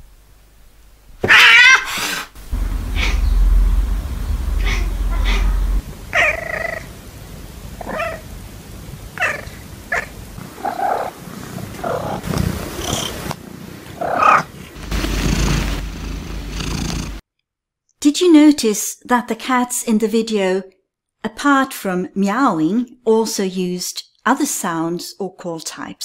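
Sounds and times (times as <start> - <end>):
cats calling: 1.2 - 2.2, 7.8 - 8.3, 9.2 - 11.1
cat purring: 2.4 - 17.2.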